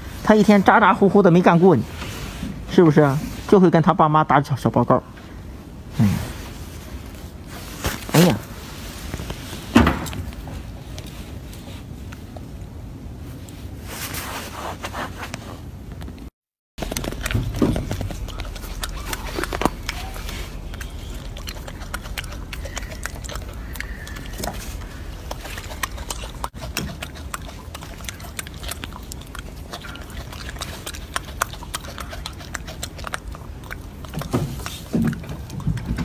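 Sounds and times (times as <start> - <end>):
monkeys handling food: 16.8 - 36.0.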